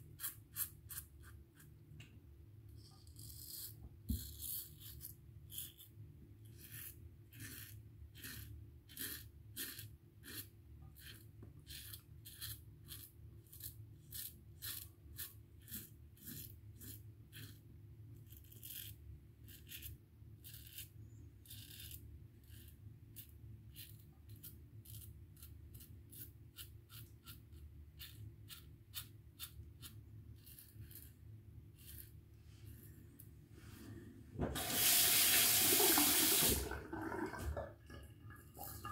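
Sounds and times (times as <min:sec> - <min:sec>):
razor scraping stubble: 0:06.5 - 0:17.6, 0:18.3 - 0:32.2.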